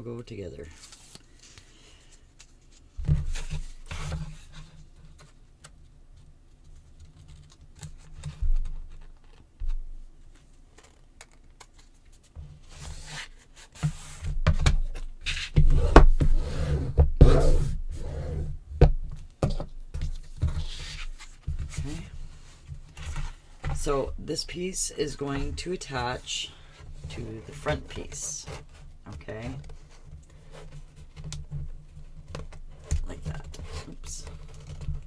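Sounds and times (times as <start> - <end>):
paper rubbing and scraping: 15.2 - 18.4.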